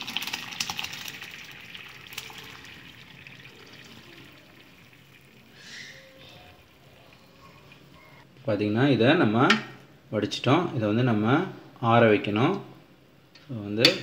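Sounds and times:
water pouring through colander: 0.0s - 7.9s.

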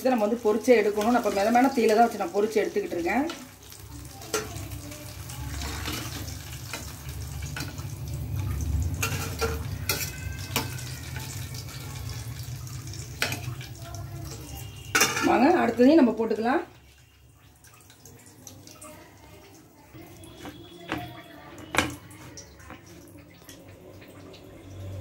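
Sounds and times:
oil sizzling deep-frying: 0.0s - 25.0s
steel skimmer clinking on pan: 8.9s - 12.1s, 14.9s - 16.0s.

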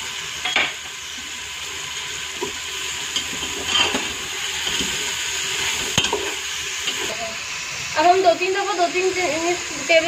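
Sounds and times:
food sizzling in oil: 0.0s - 10.0s
metal spoon scraping pot: 3.2s - 7.1s.

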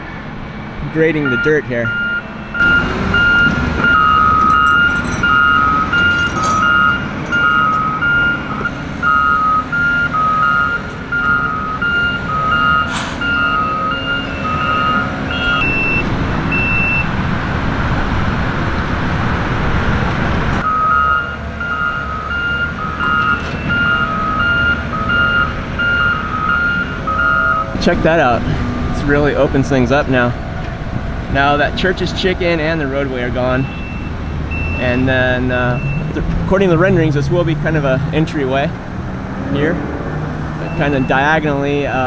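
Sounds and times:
diesel engine rumble: 0.0s - 42.0s
backup alarms beeping: 1.2s - 17.1s, 20.6s - 27.8s, 33.6s - 36.1s, 40.6s - 41.5s.

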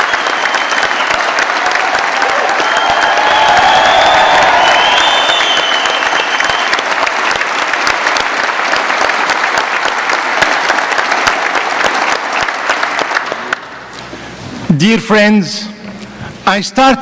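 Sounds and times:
large audience applauding: 0.0s - 13.9s.

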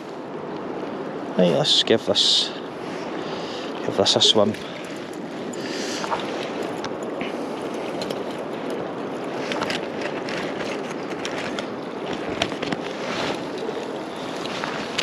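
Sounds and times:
flowing river water: 0.0s - 15.0s.

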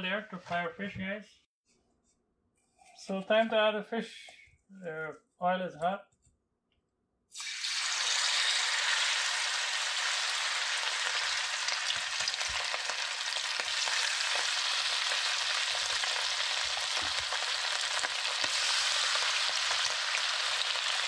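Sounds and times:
fish sizzling in hot oil: 7.4s - 21.0s.

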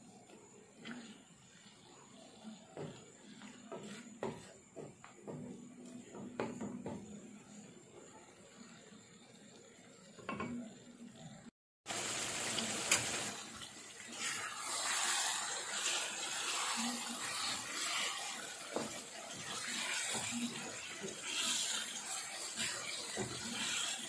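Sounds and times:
spatula scraping a pan: 0.8s - 4.9s, 14.0s - 24.0s
meat sizzling in a frying pan: 11.9s - 24.0s.

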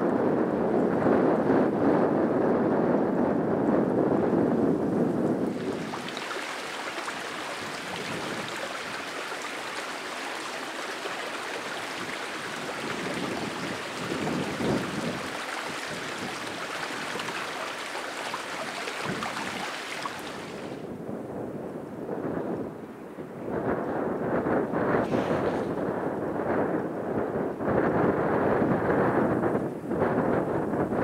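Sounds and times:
running water rushing: 5.2s - 20.9s.

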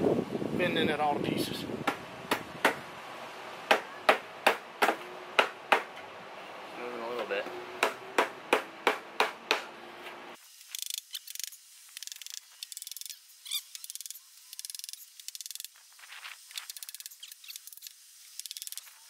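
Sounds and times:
hammer blows on wood: 1.8s - 2.8s
insects buzzing clicks: 10.4s - 19.0s.

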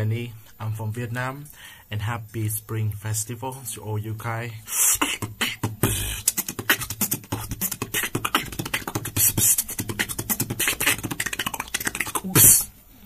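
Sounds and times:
person beatboxing: 4.7s - 12.7s.

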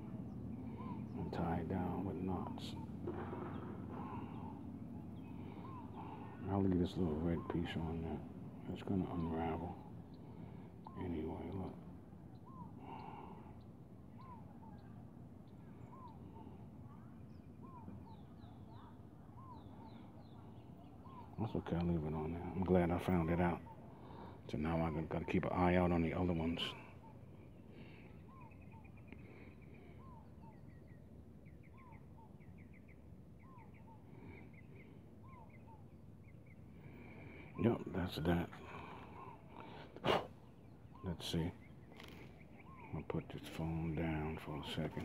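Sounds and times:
low steady background rumble: 0.0s - 45.0s
bird whistling: 12.4s - 13.4s, 14.1s - 15.0s, 29.8s - 36.4s.

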